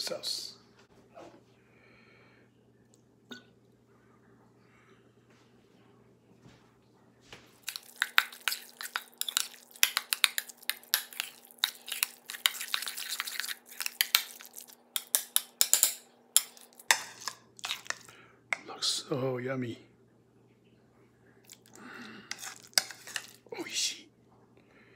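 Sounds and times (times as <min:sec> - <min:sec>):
metal spoon clinking in bowl: 0:07.7 - 0:18.1, 0:22.3 - 0:23.4.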